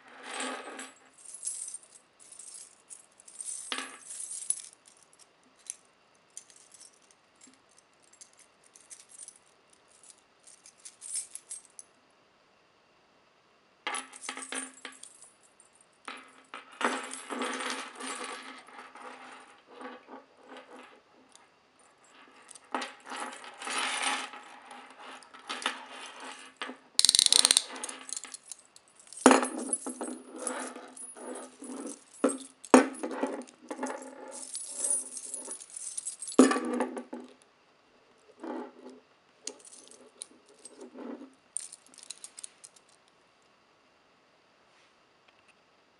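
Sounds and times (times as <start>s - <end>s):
handcuff clicks and chain rattles: 27.0s - 36.4s, 39.5s - 40.8s, 41.6s - 43.0s
keys jangling: 27.0s - 36.4s, 39.5s - 40.9s, 41.6s - 43.0s.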